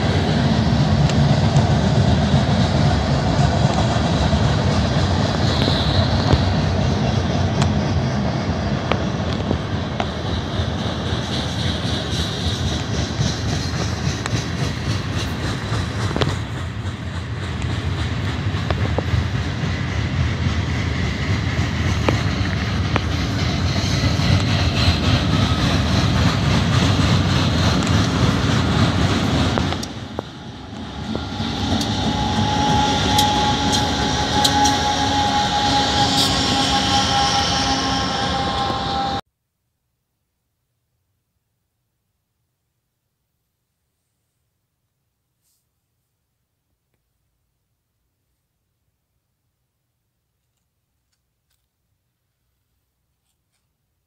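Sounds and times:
locomotive high whine: 0.0 - 39.3
freight cars clattering on rails: 8.8 - 39.2.

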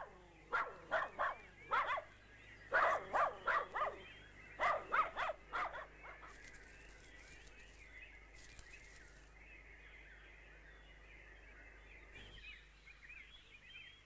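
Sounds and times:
dogs barking: 0.0 - 6.4.

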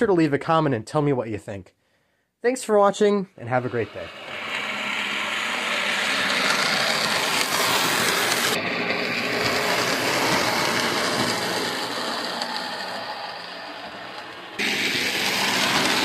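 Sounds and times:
model train motor whirring: 3.6 - 16.0
wheels rumbling on rails: 3.9 - 16.0.

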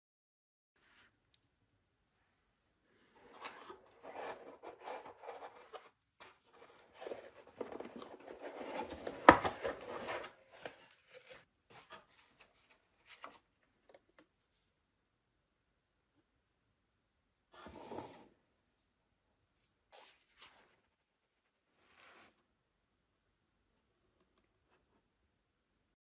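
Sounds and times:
cardboard box sliding and rubbing: 3.2 - 12.1, 17.6 - 18.3.

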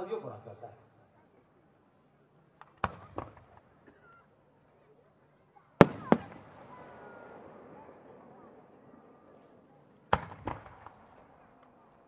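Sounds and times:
loud firework bang with echo: 5.8 - 7.8.

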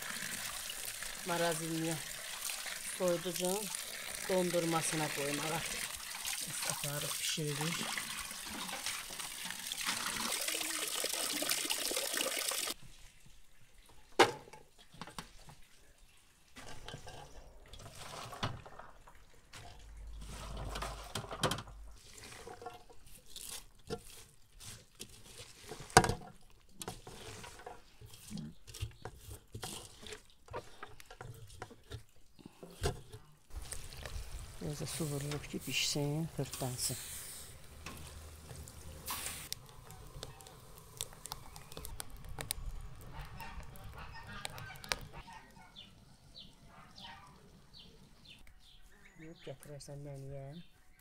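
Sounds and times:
water splashing into colander: 0.0 - 15.8, 16.4 - 27.7, 32.6 - 36.9
beans rustling in colander: 19.6 - 31.9, 32.7 - 45.2.

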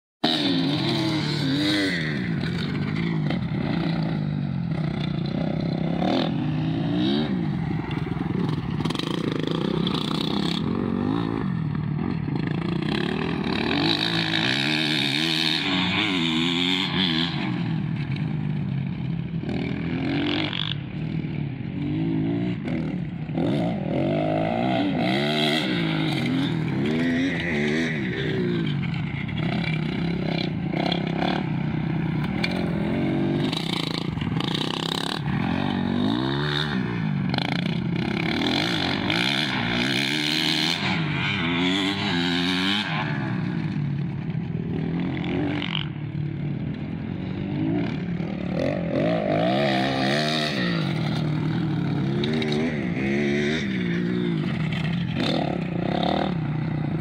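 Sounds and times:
dirt bike engines revving: 0.2 - 57.0.

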